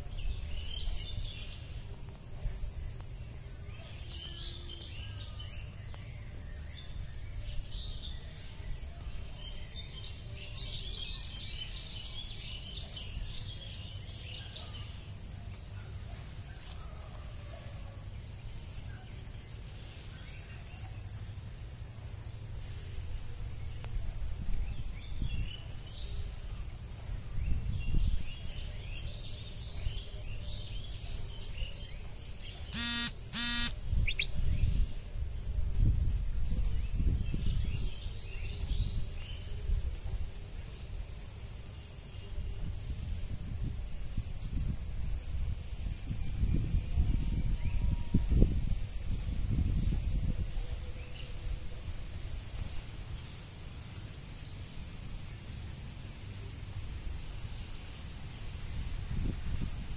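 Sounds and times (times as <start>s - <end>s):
high insect drone: 32.8s - 33.7s
birds chirping: 32.8s - 34.3s
loud short pitched calls: 32.8s - 34.3s.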